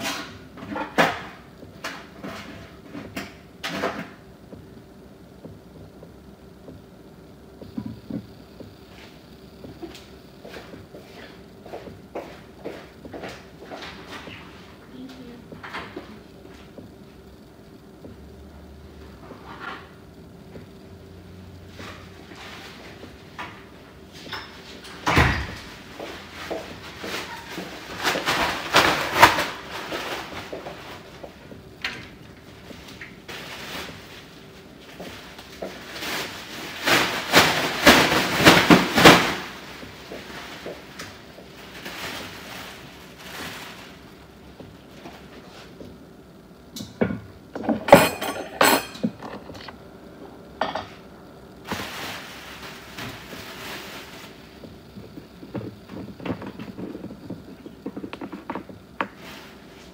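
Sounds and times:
objects clattering and knocking: 0:00.0 - 0:04.2, 0:21.7 - 0:43.9, 0:46.8 - 0:49.8, 0:51.6 - 0:59.9
faint steady hum: 0:00.0 - 0:59.9.

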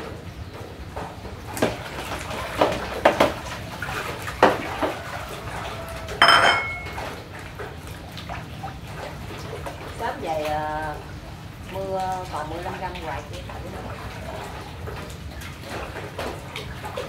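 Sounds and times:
fish washed in water: 0:00.0 - 0:17.0
knocks against metal basin: 0:06.2 - 0:07.0
metallic clang: 0:06.2 - 0:07.0.

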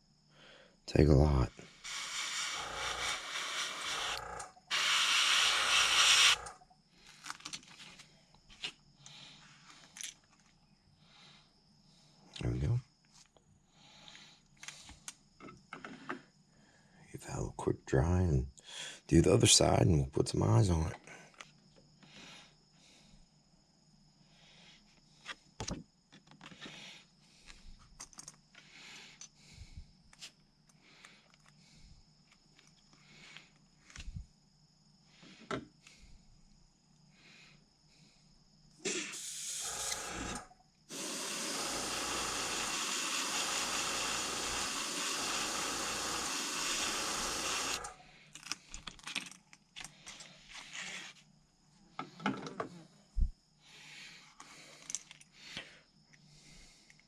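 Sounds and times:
hot-air dryer blowing: 0:01.8 - 0:06.5, 0:38.9 - 0:48.0.

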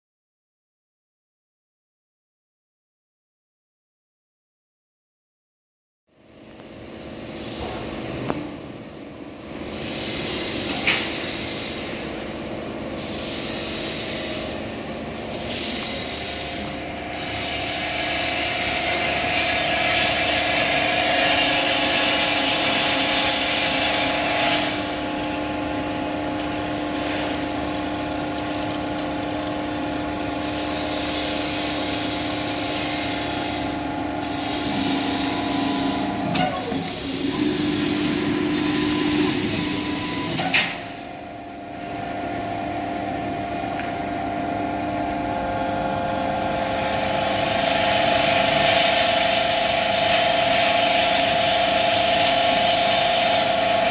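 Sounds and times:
spindle motor whine: 0:13.0 - 0:53.9.

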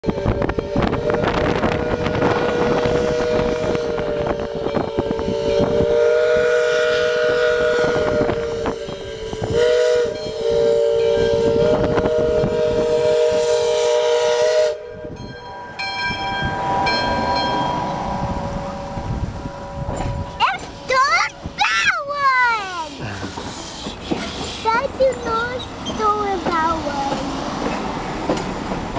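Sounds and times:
steam locomotive whistle: 0:00.0 - 0:21.0
short high ringing tones: 0:14.9 - 0:20.9.

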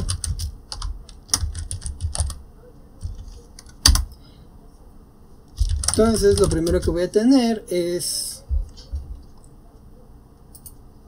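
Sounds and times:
typing on computer keyboard: 0:00.0 - 0:02.4, 0:03.0 - 0:04.2, 0:05.6 - 0:07.0, 0:10.5 - 0:10.8.

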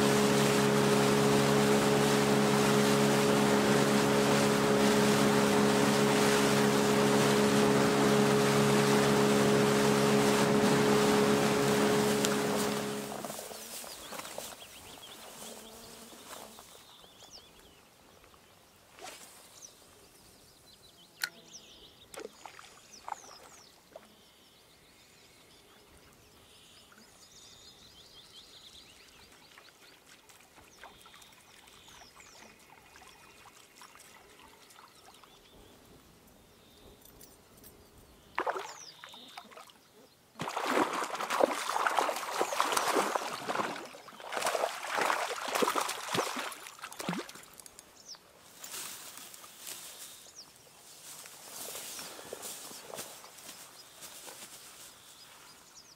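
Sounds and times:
fish thrashing and splashing: 0:40.4 - 0:47.6.

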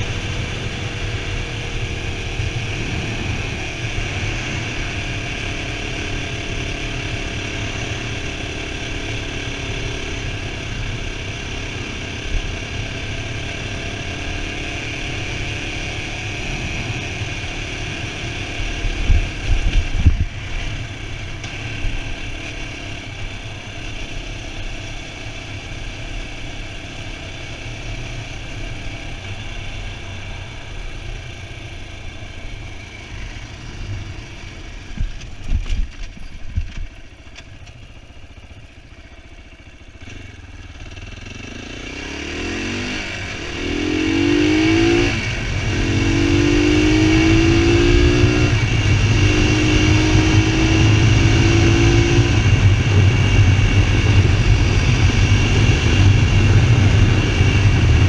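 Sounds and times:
motorcycle engine cruising: 0:00.0 - 0:58.0
wind noise: 0:18.9 - 0:20.8, 0:34.9 - 0:36.9, 0:44.1 - 0:58.0.

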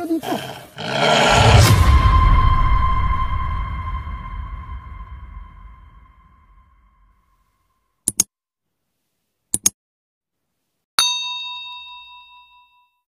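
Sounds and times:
bell-like ding: 0:11.0 - 0:13.0.

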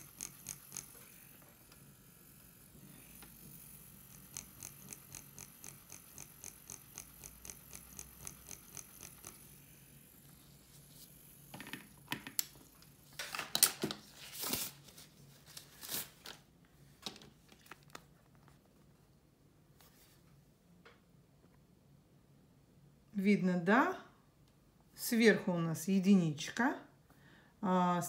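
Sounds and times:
light regular ticking: 0:00.0 - 0:01.0, 0:04.0 - 0:09.5.

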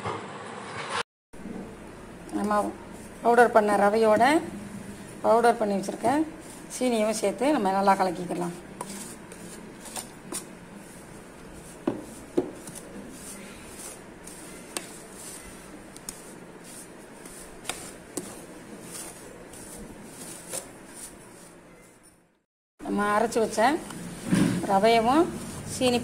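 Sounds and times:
spoon scraping in bowl: 0:08.4 - 0:22.2.

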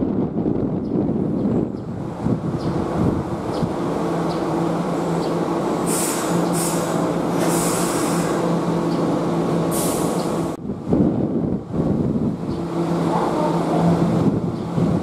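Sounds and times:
electric train humming: 0:00.0 - 0:15.0
low train rumble: 0:00.0 - 0:15.0
brake air hissing: 0:05.8 - 0:08.5, 0:09.7 - 0:10.4.

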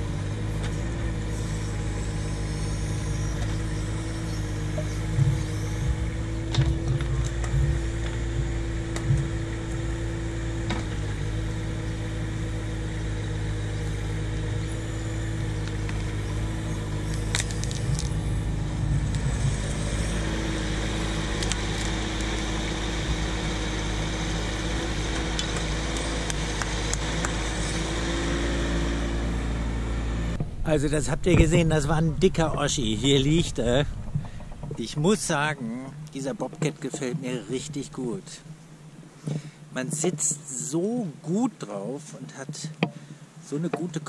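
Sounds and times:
hydraulic whine: 0:00.0 - 0:40.2
diesel engine running: 0:00.0 - 0:41.4
roots cracking: 0:15.6 - 0:23.8.

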